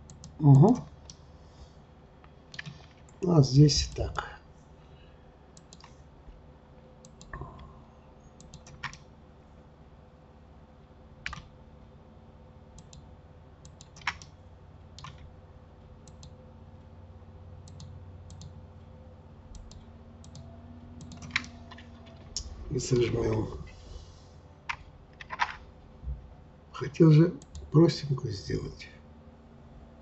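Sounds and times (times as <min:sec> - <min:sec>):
keyboard and mouse clicks: 0:00.0 - 0:01.2, 0:02.5 - 0:03.2, 0:05.6 - 0:05.9, 0:07.0 - 0:07.7, 0:08.4 - 0:09.0, 0:11.2 - 0:11.5, 0:13.6 - 0:14.3, 0:15.0 - 0:15.3, 0:16.0 - 0:16.4, 0:17.6 - 0:18.6, 0:19.5 - 0:23.5, 0:24.7 - 0:25.6
faint steady hum: 0:00.0 - 0:30.0.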